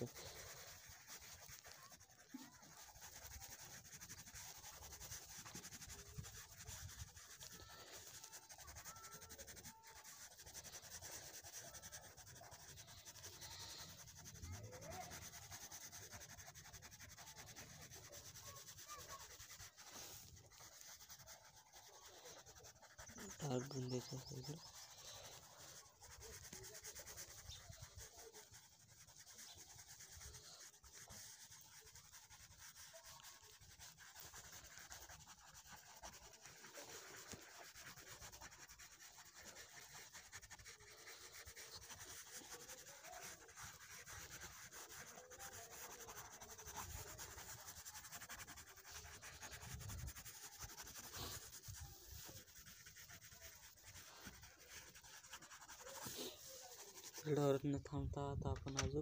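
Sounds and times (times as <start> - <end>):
pencil rubbing on paper: 0.0 - 59.0.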